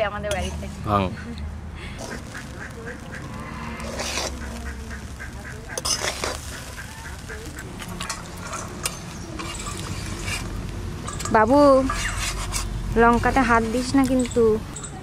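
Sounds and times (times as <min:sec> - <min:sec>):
metal spatula scraping pan: 0:00.2 - 0:00.7, 0:03.0 - 0:14.4
ducks quacking: 0:02.0 - 0:08.1.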